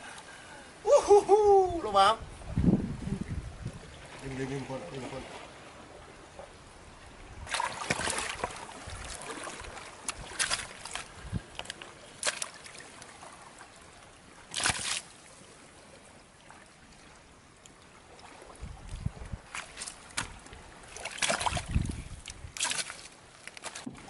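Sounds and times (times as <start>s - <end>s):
faint water trickling: 0.0s - 24.0s
water splashing: 7.4s - 24.0s.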